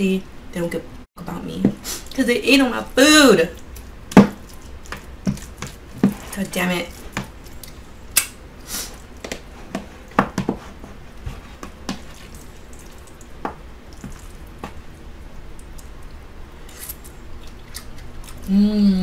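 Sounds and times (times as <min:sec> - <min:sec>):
low steady hum: 0:00.0 - 0:19.0
wet chewing: 0:03.5 - 0:08.3, 0:11.1 - 0:18.5.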